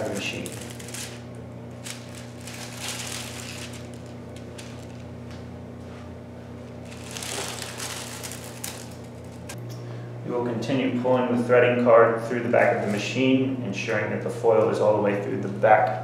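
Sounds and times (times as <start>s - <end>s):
foil and paper crinkling: 0.0s - 5.1s, 6.8s - 9.6s
laminator low hum: 0.0s - 16.0s.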